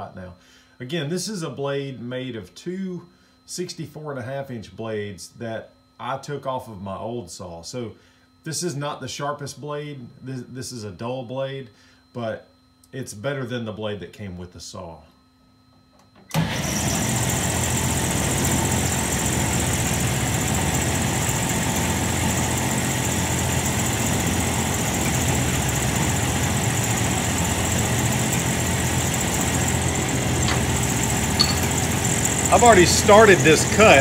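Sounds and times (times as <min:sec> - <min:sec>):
bandsaw running: 0:16.8 - 0:34.0.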